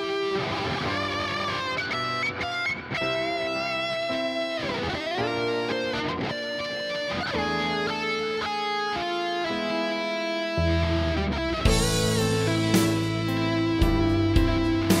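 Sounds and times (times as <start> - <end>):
electric guitar lead melody: 0.0 - 15.0.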